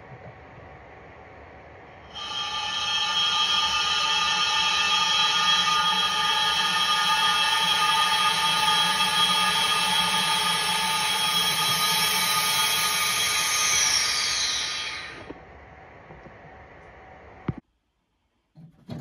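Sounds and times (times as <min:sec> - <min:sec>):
faint hum: 0:00.0 - 0:18.6
drone of held tones: 0:01.9 - 0:15.4.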